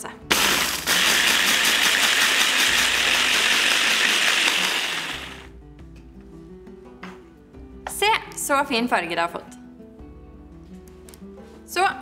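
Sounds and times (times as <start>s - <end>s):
electric hand blender chopping: 0.3s - 5.5s.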